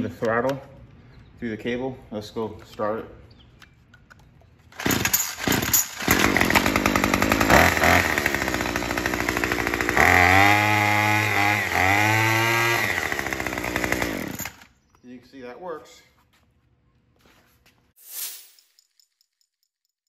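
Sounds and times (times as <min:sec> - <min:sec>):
string trimmer engine revving: 0:04.8 - 0:14.7.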